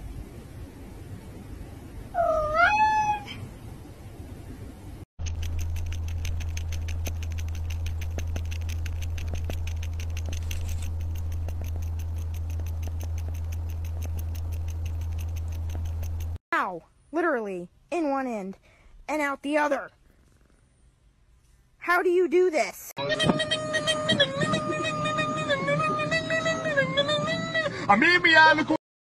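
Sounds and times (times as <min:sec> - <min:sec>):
steady low hum: 0:00.0 - 0:02.4, 0:03.2 - 0:16.4
cat meowing: 0:02.2 - 0:03.4
rapid faint clicks: 0:05.2 - 0:16.4.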